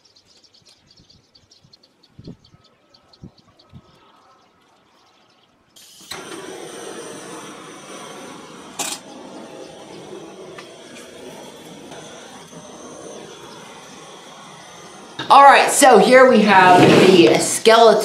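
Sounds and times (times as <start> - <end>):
propane torch hissing: 5.8 - 18.0.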